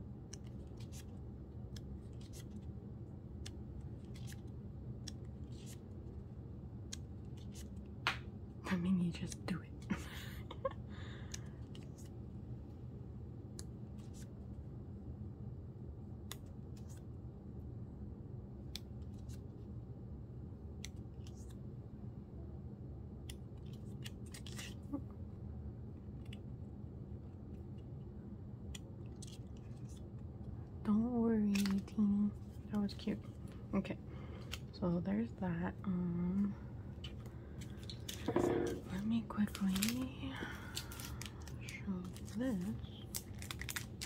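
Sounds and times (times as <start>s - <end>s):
low background hum: 0.0s - 44.0s
paper pages turning: 0.3s - 2.7s, 3.4s - 5.9s, 23.6s - 24.8s, 37.0s - 40.0s, 40.7s - 44.0s.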